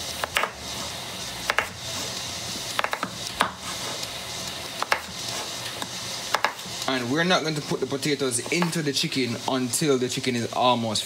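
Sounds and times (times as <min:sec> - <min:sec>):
knife striking cutting board: 0:00.2 - 0:00.6, 0:01.5 - 0:01.8, 0:02.8 - 0:03.6, 0:04.8 - 0:05.1, 0:06.3 - 0:06.6.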